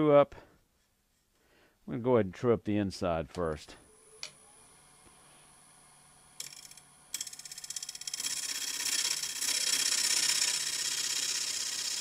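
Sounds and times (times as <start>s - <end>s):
scraper cutting wood on a lathe: 7.2s - 12.0s.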